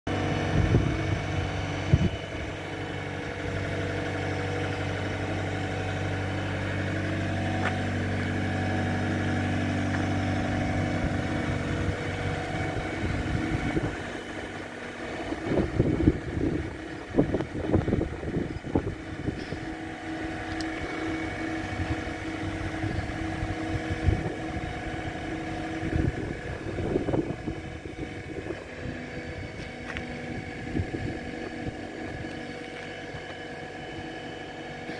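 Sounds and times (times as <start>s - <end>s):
wind rumbling on microphone: 0.1s - 3.9s, 10.3s - 34.2s
firewood processor mechanical drone: 0.1s - 34.9s.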